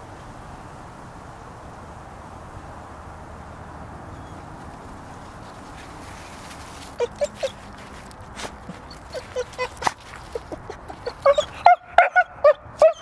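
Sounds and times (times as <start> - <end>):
outdoor background hiss: 0.0 - 13.0
short crackles: 4.2 - 11.3
dog whining: 7.0 - 7.7, 8.7 - 13.0.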